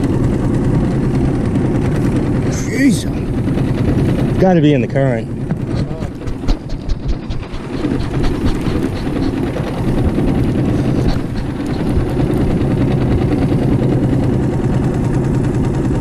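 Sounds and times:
outboard motor humming: 0.0s - 16.0s.

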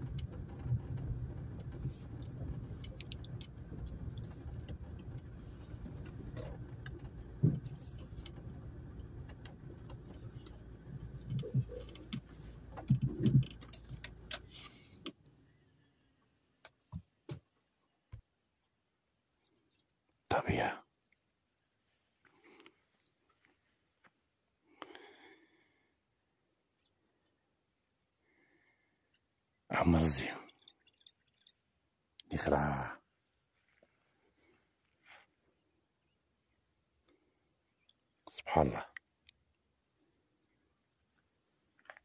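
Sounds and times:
light rattling and knocks: 0.0s - 15.2s
faint clicks: 0.0s - 15.4s
car rumbling on dirt track: 0.0s - 15.9s.

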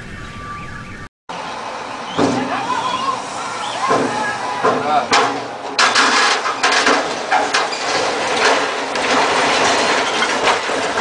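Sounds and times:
continuous noisy wash: 1.3s - 11.0s
loud crashes and bangs: 3.8s - 11.0s.

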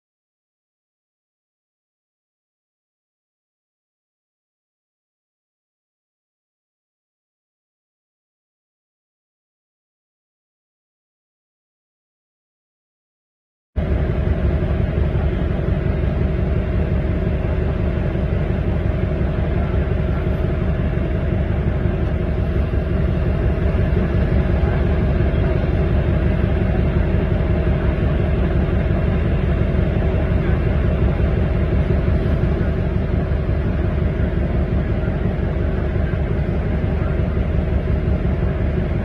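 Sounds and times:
diesel engine rumbling: 13.8s - 39.0s.

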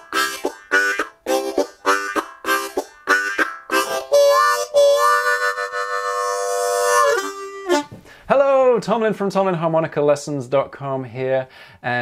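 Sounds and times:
harmonica chugging chords: 0.0s - 7.9s.

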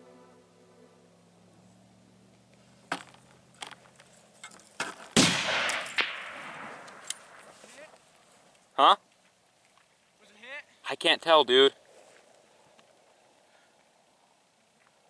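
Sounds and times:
rifle shot echoing: 5.1s - 7.5s.

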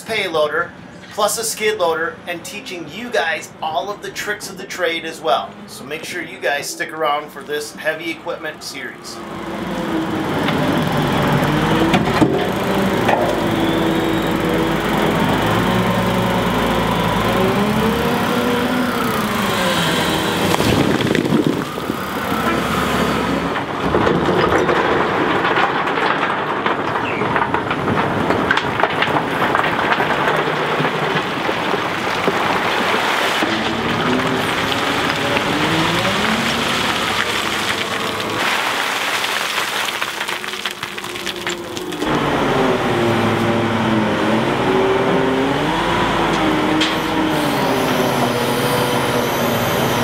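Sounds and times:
diesel engine revving under load: 8.5s - 25.6s, 29.2s - 50.0s
rock clattering down: 23.6s - 42.2s.

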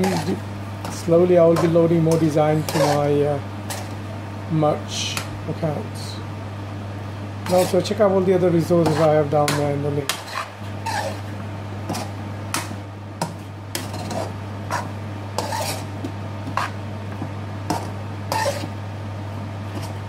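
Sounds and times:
utensil scraping frying pan: 0.0s - 4.0s, 7.4s - 8.0s, 8.6s - 16.8s, 17.7s - 18.8s, 19.7s - 20.0s
steady low hum: 0.0s - 20.0s.

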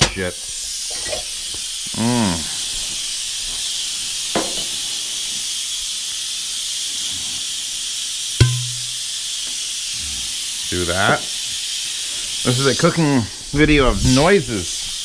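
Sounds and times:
pressure cooker venting steam: 0.0s - 15.0s
sharp knock: 8.4s - 9.0s.

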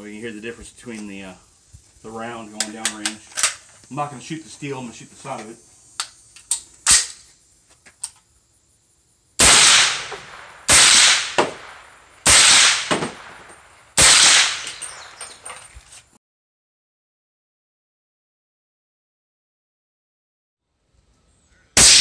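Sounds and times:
sharp handling clicks: 2.6s - 3.7s
suppressed rifle shots: 9.4s - 15.5s, 21.8s - 22.0s.

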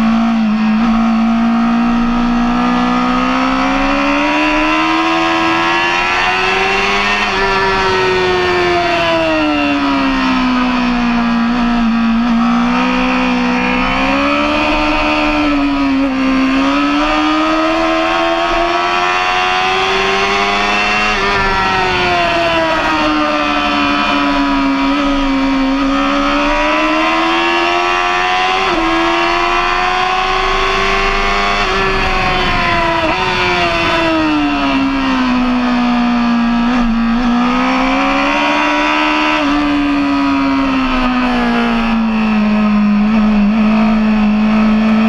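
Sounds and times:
motorcycle engine at high revs: 0.0s - 45.0s
wind noise rushing: 6.2s - 11.8s, 20.6s - 23.2s.

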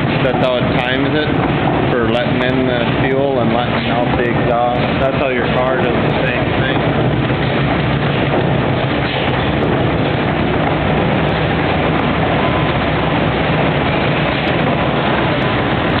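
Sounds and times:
gas engine running: 0.0s - 16.0s
low hum: 0.0s - 16.0s
mechanical clatter: 0.0s - 16.0s.

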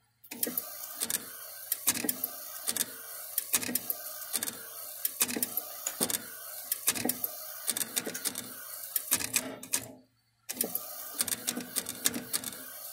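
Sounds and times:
printer carriage whirring: 0.3s - 12.9s
printer carriage sharp clicks: 0.4s - 12.6s.

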